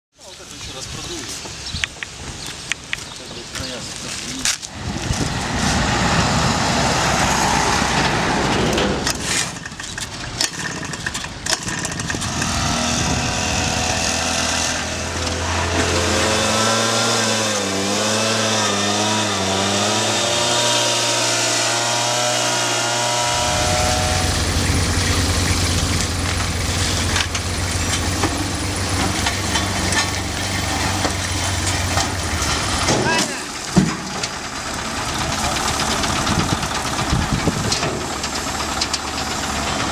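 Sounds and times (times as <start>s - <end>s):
road roller diesel engine hum: 1.2s - 39.9s
backpack blower engine: 10.4s - 32.9s.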